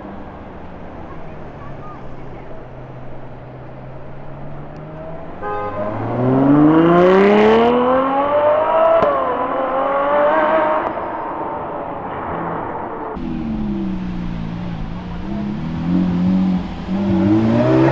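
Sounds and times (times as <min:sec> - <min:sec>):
car engine accelerating hard: 0:04.2 - 0:17.9.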